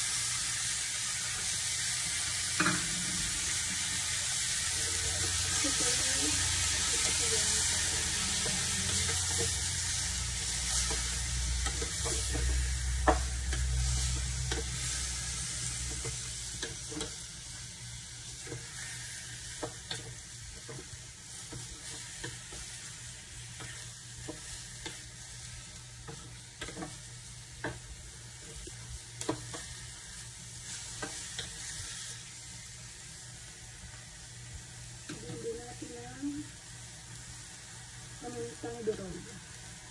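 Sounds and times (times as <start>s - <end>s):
meat sizzling in oil: 0.0s - 39.9s
spatula knocking and scraping pan: 10.4s - 14.9s, 18.4s - 25.1s, 26.0s - 29.9s, 30.8s - 32.1s.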